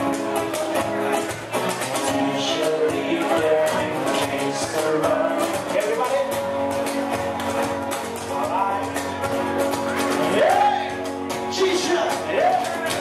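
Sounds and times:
acoustic guitar strumming: 0.0 - 13.0
man singing: 1.9 - 6.5, 10.2 - 13.0.

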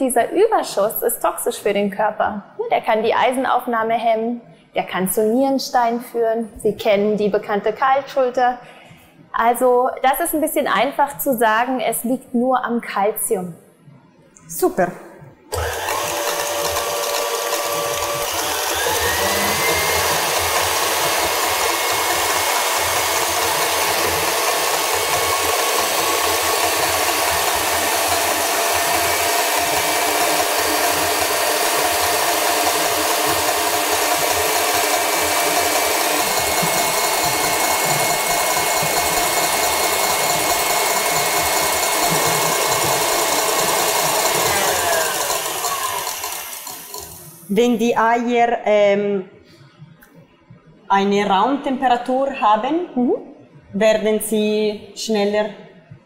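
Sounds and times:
stand mixer whisking: 15.6 - 47.5.

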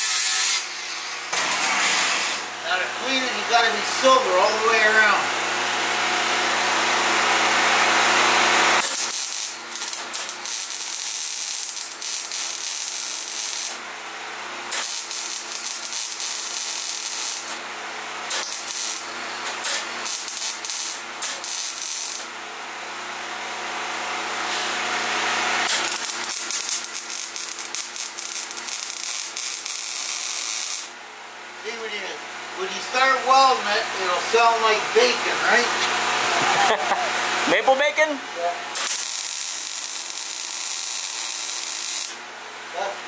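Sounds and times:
welder arc crackling: 8.4 - 13.8, 14.7 - 17.6, 18.3 - 22.3, 25.6 - 31.0, 38.7 - 42.2
loud hiss: 38.7 - 42.2.

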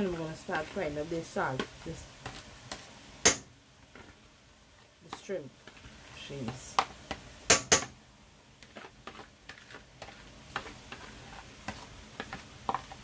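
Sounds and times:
spoon scraping rice from colander: 8.6 - 13.0.

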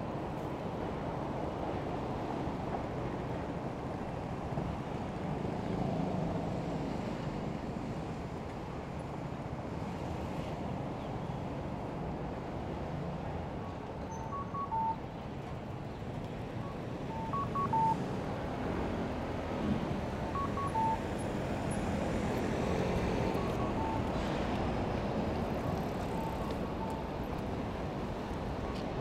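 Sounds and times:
city street noise: 0.0 - 29.0
electronic signal beeps: 14.0 - 15.1, 16.6 - 18.0, 20.3 - 21.1, 23.0 - 24.2, 26.0 - 27.2.

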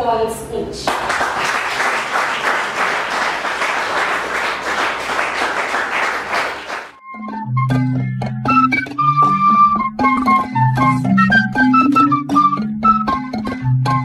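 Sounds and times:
crowd applause: 0.9 - 7.0.

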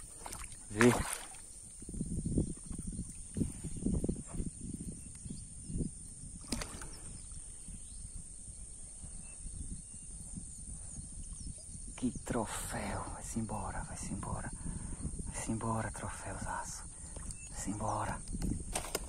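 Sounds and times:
water splashing and sloshing: 0.0 - 1.5, 6.4 - 7.1.

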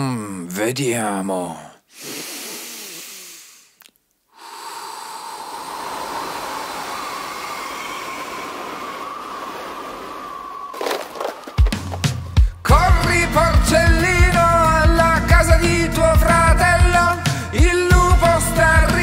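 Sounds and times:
rushing air blow: 4.4 - 11.7.

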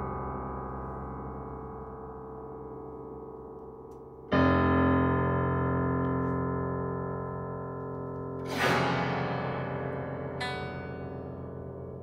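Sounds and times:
low piano chord ringing: 0.0 - 12.0
bright noisy piano attack: 8.5 - 12.0.

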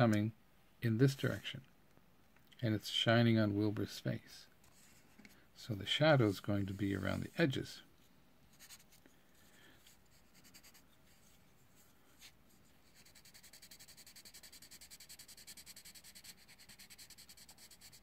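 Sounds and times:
coloured pencil shading on paper: 9.8 - 18.0.

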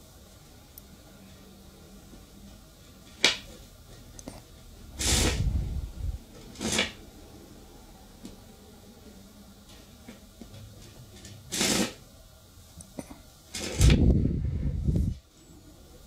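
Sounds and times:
battery rattling through wire coil: 5.0 - 5.7, 6.5 - 7.0, 11.3 - 12.0, 13.5 - 14.1.

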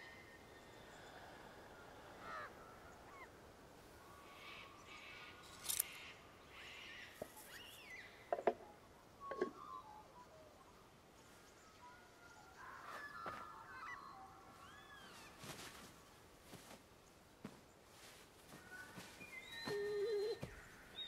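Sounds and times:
forest ambience: 0.0 - 21.0
short bird calls: 18.5 - 21.0.

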